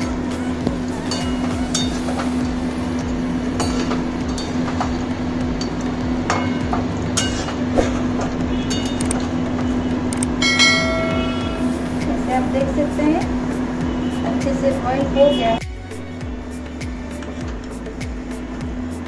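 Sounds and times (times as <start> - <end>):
short ringing chime: 10.4 - 11.5.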